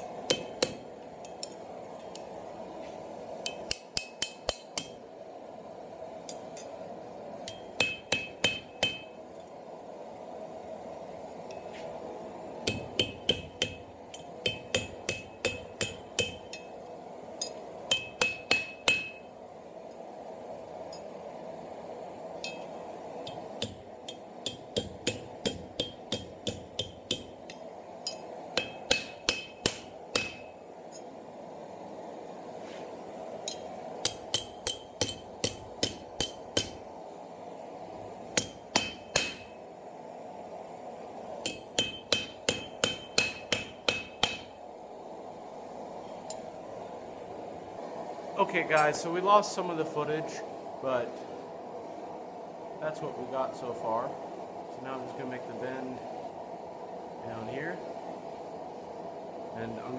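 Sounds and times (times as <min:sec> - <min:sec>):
hammer striking steel on anvil: 0:00.0 - 0:02.3, 0:03.4 - 0:05.0, 0:07.4 - 0:09.2, 0:12.6 - 0:16.8, 0:17.4 - 0:19.3, 0:22.4 - 0:31.1, 0:33.4 - 0:36.9, 0:38.4 - 0:39.6, 0:41.4 - 0:44.6
steady hum: 0:00.0 - 0:59.9.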